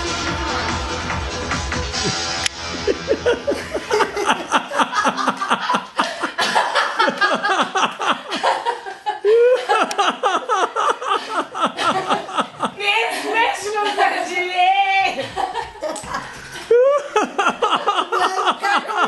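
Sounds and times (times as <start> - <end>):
hearty laughter: 2.1 - 13.4, 15.1 - 19.0.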